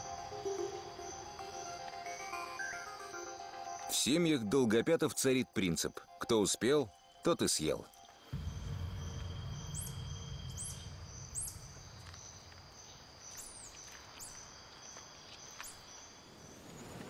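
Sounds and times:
very high insect chirps: 0.0 - 3.9, 7.9 - 16.6
insects buzzing: 0.0 - 4.2, 6.9 - 17.0
low rumble: 8.3 - 13.6.

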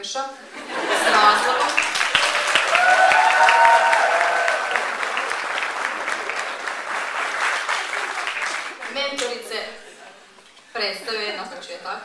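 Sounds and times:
audience applauding: 0.8 - 9.5.

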